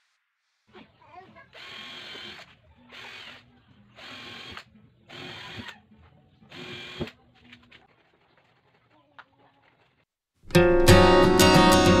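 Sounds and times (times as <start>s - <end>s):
cordless drill whining: 1.5s - 5.8s, 6.5s - 7.2s.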